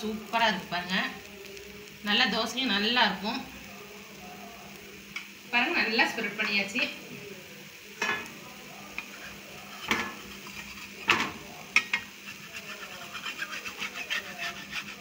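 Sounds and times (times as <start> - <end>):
spatula tapping on a pan: 9.8 - 12.1.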